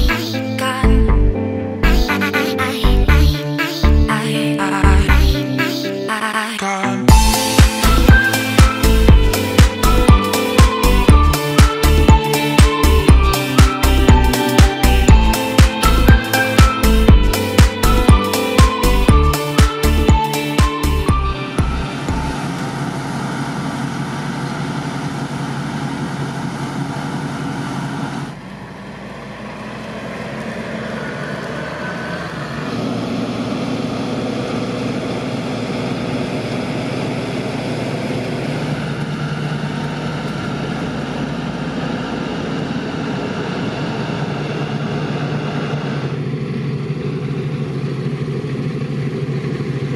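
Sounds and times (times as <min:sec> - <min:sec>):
diesel engines running: 0:00.0 - 0:49.9.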